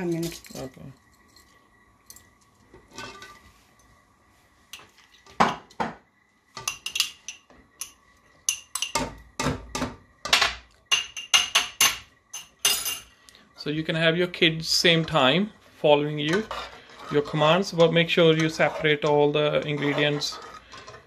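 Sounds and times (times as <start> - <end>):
utensils tapping glass and pans: 6.6 - 13.1
metal spoon scraping glass: 18.3 - 21.0.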